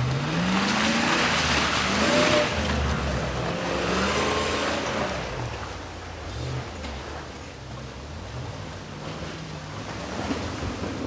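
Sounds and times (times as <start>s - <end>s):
car engine revving under load: 0.0s - 7.1s
tyres churning mud: 0.0s - 11.0s.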